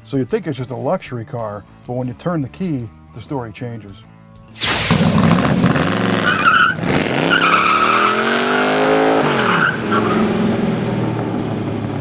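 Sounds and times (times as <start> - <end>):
car engine revving: 4.9 - 12.0
tires squealing: 5.0 - 10.8.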